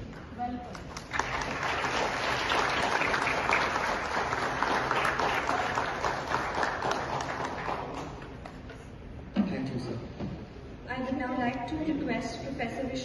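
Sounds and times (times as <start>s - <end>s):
audience applauding: 0.7s - 8.5s.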